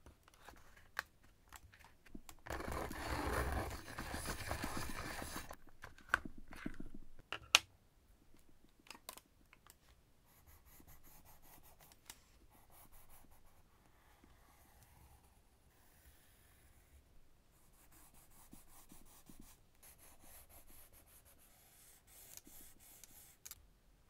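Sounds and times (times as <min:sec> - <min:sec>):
pencil scratching on paper: 0:03.0 - 0:05.6, 0:17.7 - 0:23.4.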